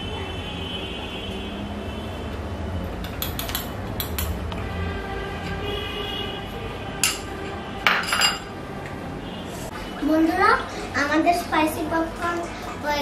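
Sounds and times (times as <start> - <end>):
spoon clinking on ceramic bowl: 7.9 - 8.5.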